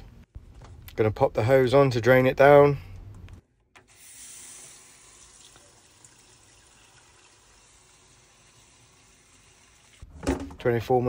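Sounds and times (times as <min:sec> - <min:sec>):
water draining hiss: 0:03.9 - 0:10.0.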